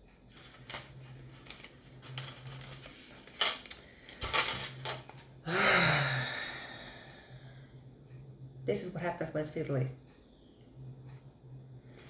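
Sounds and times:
person sighing with a groan: 0:05.4 - 0:07.6.

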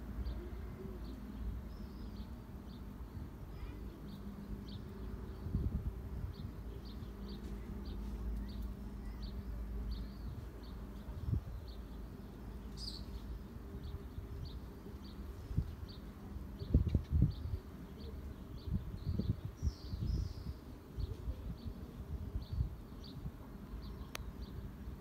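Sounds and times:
small bird chirping: 0:12.7 - 0:13.4.

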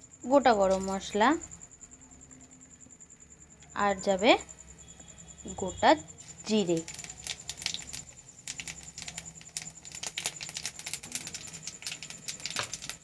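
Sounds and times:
spices crackling in hot oil: 0:00.4 - 0:01.2, 0:06.1 - 0:13.0.

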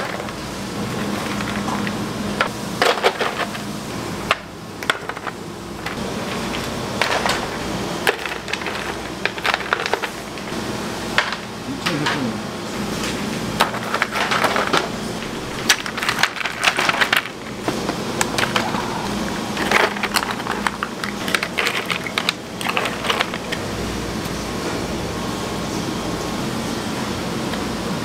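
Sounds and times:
hard objects clicking and clattering: 0:04.3 - 0:10.5, 0:13.6 - 0:18.8, 0:19.5 - 0:23.6.

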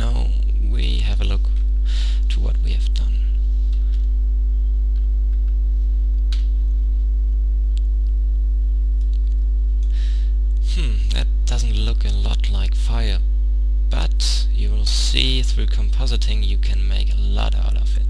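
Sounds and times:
electrical mains hum: 0:00.0 - 0:18.0
short breath: 0:01.8 - 0:02.3, 0:09.8 - 0:10.4.

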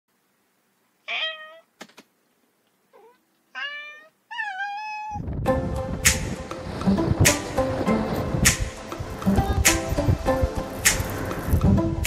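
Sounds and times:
cat meowing: 0:01.1 - 0:01.7, 0:02.9 - 0:05.2
music: 0:05.5 - 0:12.0.

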